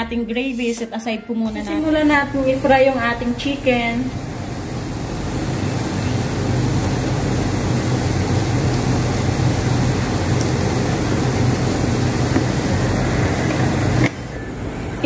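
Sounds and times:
mechanical hum with hiss: 0:01.5 - 0:15.0.

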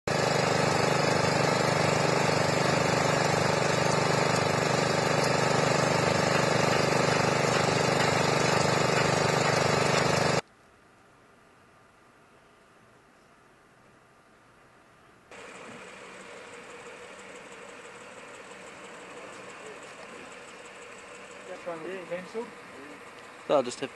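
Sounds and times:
engine humming: 0:00.0 - 0:10.4, 0:15.3 - 0:23.9.

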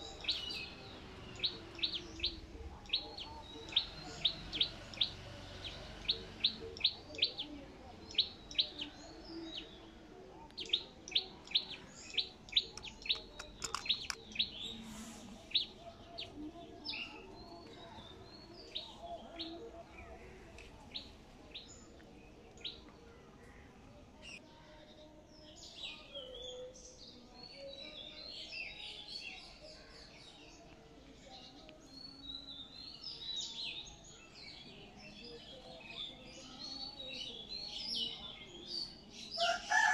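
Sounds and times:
small birds chirping: 0:00.0 - 0:39.9
sharp clicks: 0:12.6 - 0:14.2.

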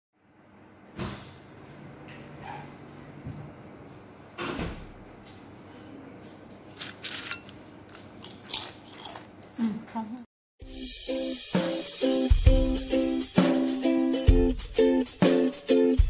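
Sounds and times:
potato chips crunching: 0:06.7 - 0:09.6.

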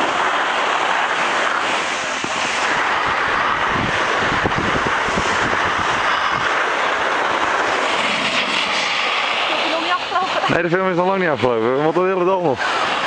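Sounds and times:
low wind buffeting: 0:00.0 - 0:13.0
wind on microphone: 0:00.0 - 0:13.0.

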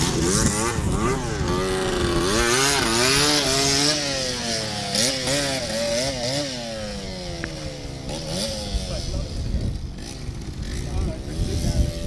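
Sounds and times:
dirt bike engine revving: 0:00.0 - 0:12.0.

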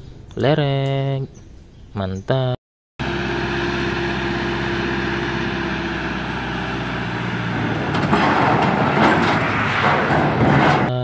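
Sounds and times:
crane engine running: 0:03.0 - 0:10.9.

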